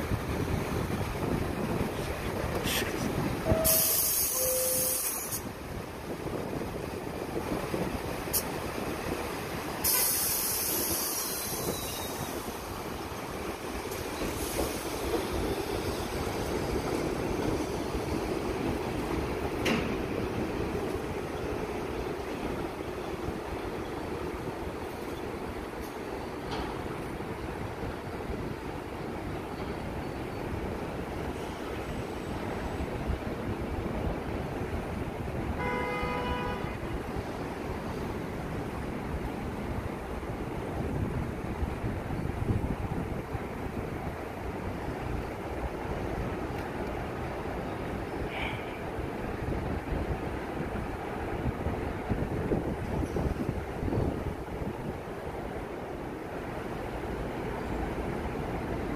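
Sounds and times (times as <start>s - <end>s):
wind noise: 0.0s - 47.2s, 47.8s - 56.1s
subway train rumbling on steel track: 0.0s - 58.9s
subway train horn blast: 3.4s - 5.5s, 9.8s - 11.8s, 35.5s - 37.1s.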